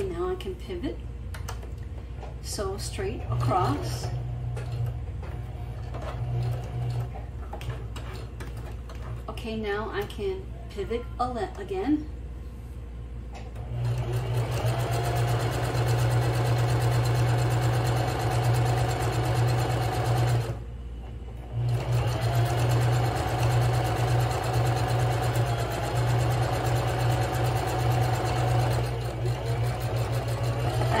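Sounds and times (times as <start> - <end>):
electric sewing machine stitching: 3.2 - 7.2, 13.6 - 20.6, 21.5 - 31.0.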